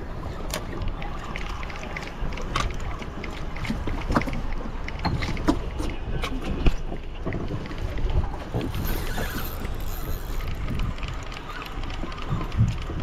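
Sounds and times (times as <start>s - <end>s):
water against boat hull: 0.0s - 13.0s
wind buffeting microphone: 0.0s - 13.0s
fishing reel clicks and knocks: 8.7s - 12.6s.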